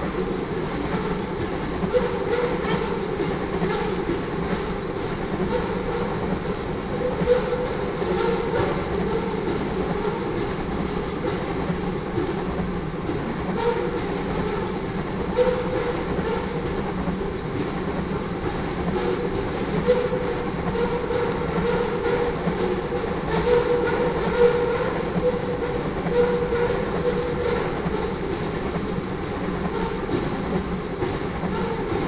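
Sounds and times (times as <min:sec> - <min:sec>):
train wheels clacking over rail joints: 0:00.0 - 0:32.0
thin squealing tone: 0:06.9 - 0:09.4, 0:19.9 - 0:28.1.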